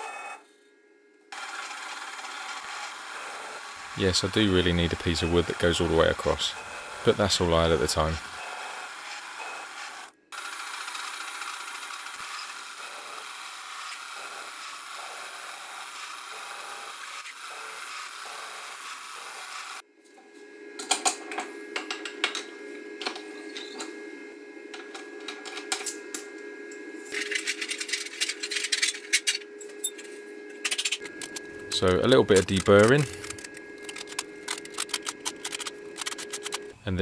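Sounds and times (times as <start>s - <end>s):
machine hum: 0.0s - 37.0s
mill drilling metal: 1.4s - 19.8s.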